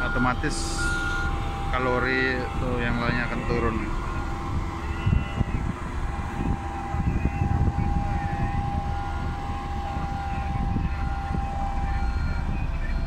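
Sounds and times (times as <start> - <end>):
diesel engine low rumble: 0.0 - 13.0
thin steady whine: 0.0 - 13.0.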